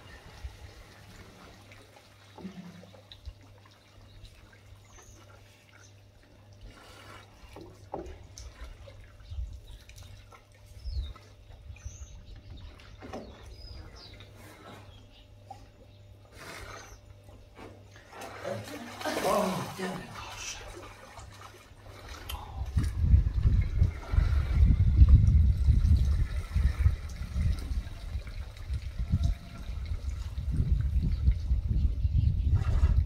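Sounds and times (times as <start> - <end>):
water dripping and trickling: 0.0 - 13.4, 18.0 - 31.8
steady low hum: 0.0 - 33.0.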